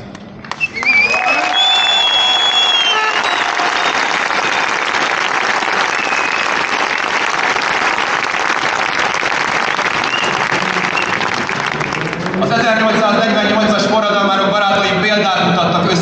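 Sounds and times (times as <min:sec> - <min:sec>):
large crowd applauding: 0:00.4 - 0:13.3.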